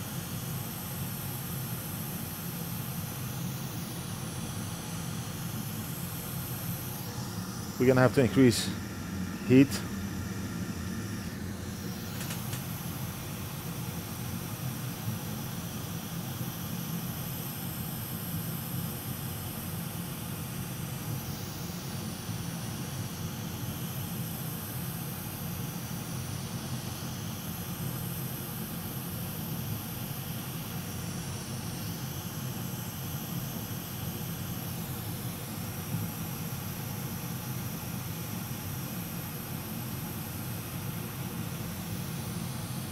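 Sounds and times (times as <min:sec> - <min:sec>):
hot air blower hissing: 0:01.8 - 0:16.2, 0:39.0 - 0:42.9.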